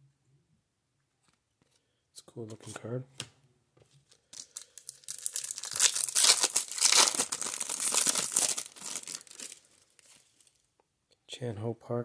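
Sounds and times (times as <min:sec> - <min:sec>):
foil wrapper tearing and crinkling: 0:04.2 - 0:10.6.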